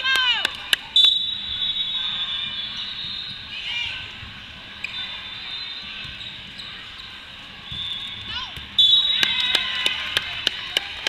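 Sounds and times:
referee's whistle blast: 1.0 - 3.5, 7.6 - 9.4
sneakers squeaking on court floor: 1.0 - 9.5.

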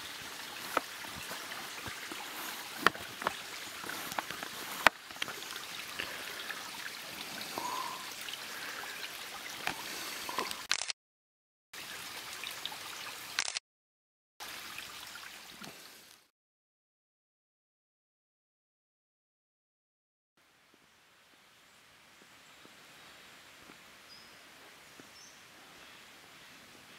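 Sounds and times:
water trickling over rocks: 0.0 - 10.7, 11.8 - 13.5, 14.4 - 16.3
small clicks: 10.4 - 11.0, 13.4 - 13.6.

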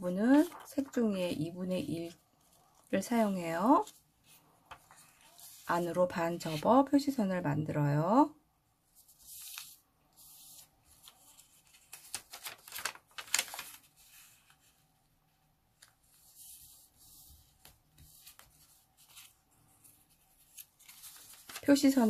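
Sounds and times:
paper rustling and crinkling: 0.3 - 1.0, 3.6 - 6.7, 9.0 - 15.0, 15.7 - 22.0.

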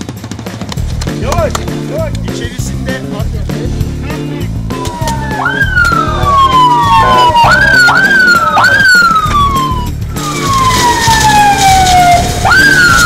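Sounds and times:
background music: 0.0 - 13.0
police siren whooping: 4.6 - 13.0.

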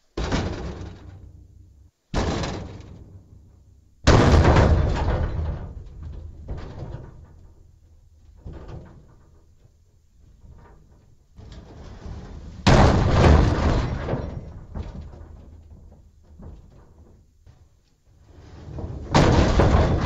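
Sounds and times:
heavy booming blow on dumpster: 4.0 - 7.7, 12.2 - 16.8, 18.3 - 20.0.

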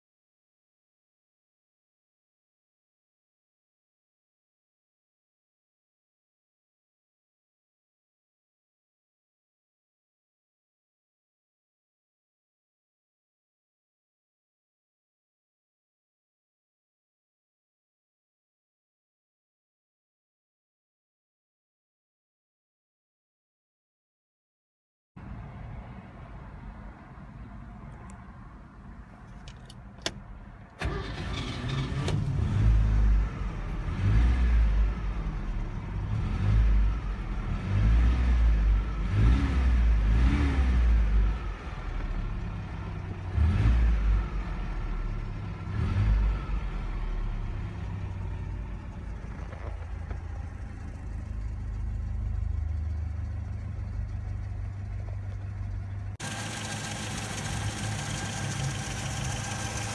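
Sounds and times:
pickup engine starting and revving: 30.8 - 59.9
engine idling: 47.6 - 59.9.

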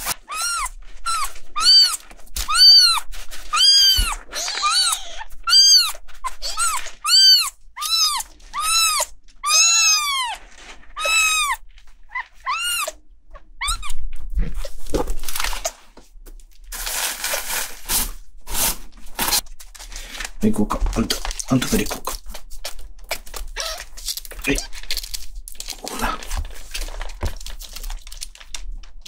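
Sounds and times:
kitten mewing: 0.0 - 10.4, 11.0 - 14.0
rustling and handling noises: 0.0 - 29.0.

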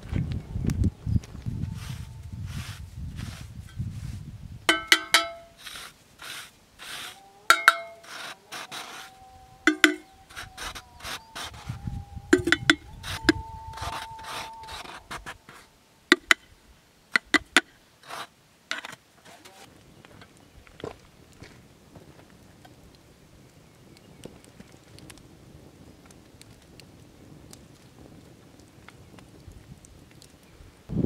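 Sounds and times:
snow scraping and crunching: 1.4 - 4.5, 5.4 - 9.2, 10.3 - 11.9, 18.0 - 18.3
clinks on metal kettle: 4.7 - 5.5, 7.5 - 8.0.

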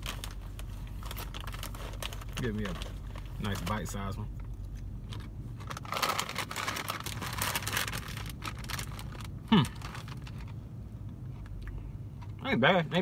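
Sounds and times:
chip bag crinkling: 0.0 - 3.9, 5.0 - 10.5.

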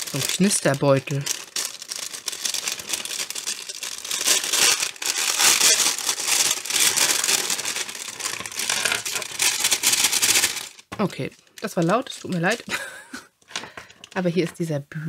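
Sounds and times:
plastic bag crinkling: 0.0 - 14.6.

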